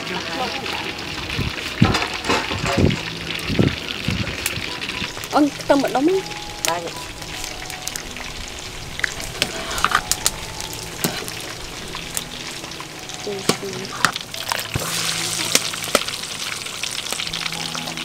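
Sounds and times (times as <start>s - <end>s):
cooking hiss: 0.0s - 18.0s
metal spoon stirring in a pot: 9.0s - 10.3s, 11.0s - 12.4s.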